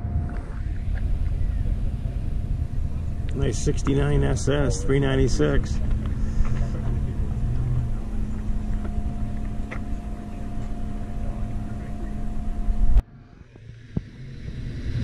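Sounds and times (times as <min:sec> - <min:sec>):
machine rumbling and humming: 0:00.0 - 0:15.0.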